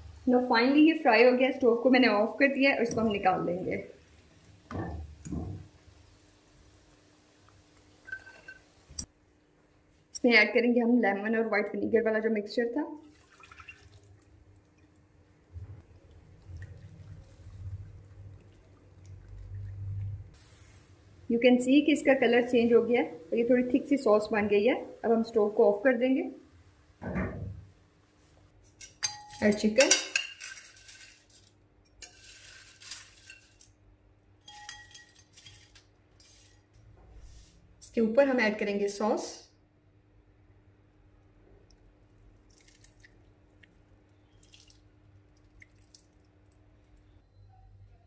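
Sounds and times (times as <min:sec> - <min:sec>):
glass and metal tongs clinking on bowl: 0:08.0 - 0:08.7, 0:28.8 - 0:31.1, 0:34.5 - 0:35.6
syrup bubbling in a wok: 0:13.1 - 0:20.9
spatula stirring: 0:28.6 - 0:33.7
crisp fried chicken rustling: 0:30.4 - 0:33.7.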